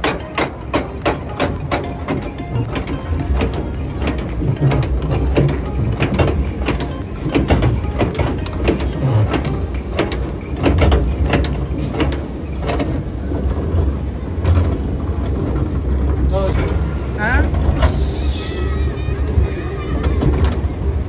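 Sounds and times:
machinery clicks and clanks: 0.0 - 21.0
ride machinery low rumble: 0.0 - 21.0.

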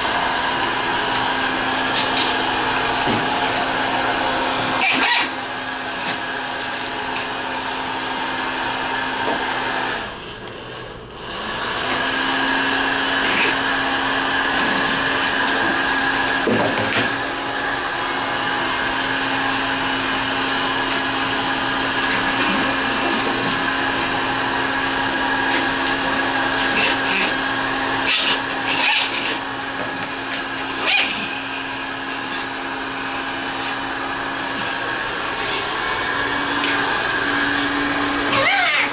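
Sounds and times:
pet dryer blowing: 0.0 - 38.9
dog crying: 4.6 - 5.4, 26.5 - 29.6, 30.6 - 31.5, 38.2 - 38.9.

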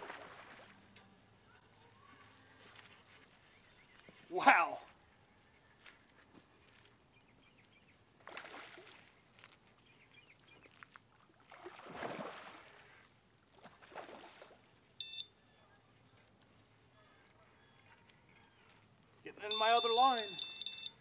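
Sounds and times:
fish splashing at surface: 0.0 - 0.8, 8.2 - 9.1, 11.4 - 12.8, 13.6 - 14.6
high-pitched electronic beep: 19.5 - 21.0.

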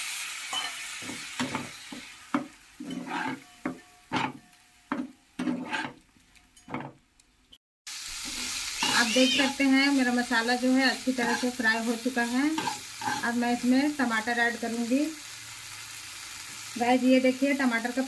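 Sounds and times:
sizzling hiss: 0.0 - 6.0, 7.9 - 18.0
metal spatula scraping pan: 0.6 - 7.0, 8.3 - 9.8, 11.2 - 11.8, 12.5 - 13.4.

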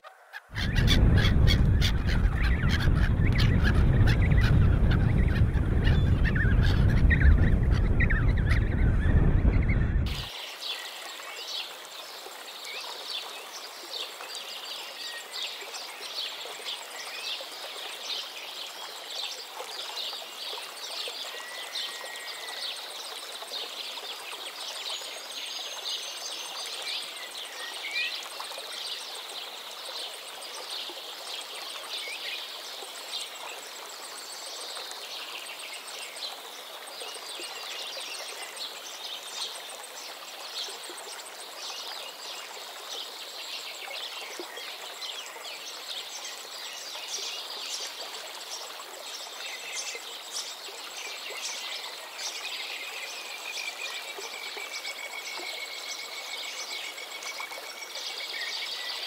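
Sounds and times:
steady rushing noise: 0.6 - 10.3.

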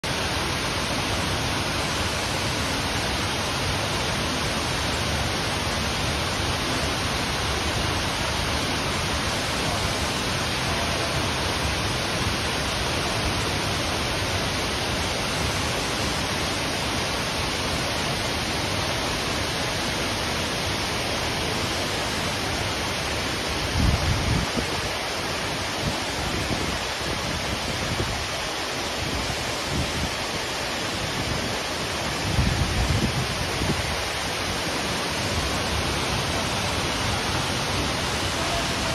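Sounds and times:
stream running over rocks: 0.0 - 38.9
waterfall rushing: 0.0 - 38.9
wind buffeting microphone: 31.1 - 34.3.

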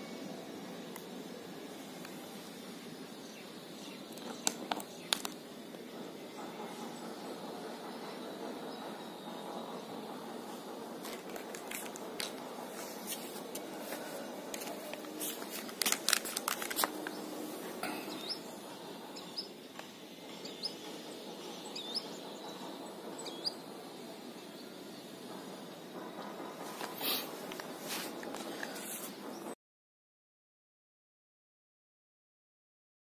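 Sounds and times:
outdoor background noise: 0.0 - 29.6
clicks and rustles: 11.0 - 17.2.

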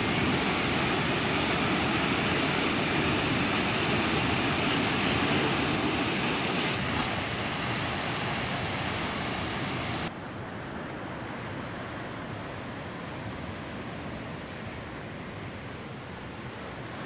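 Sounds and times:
surf churning over rocks: 0.0 - 10.1.

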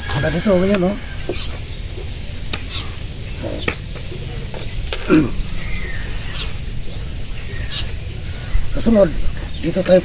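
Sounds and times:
steady low rumble: 1.0 - 9.7.

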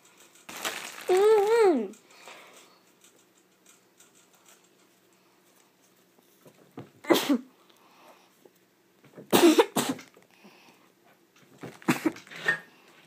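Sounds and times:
boy coughing and spluttering: 7.1 - 7.5, 9.3 - 10.0.

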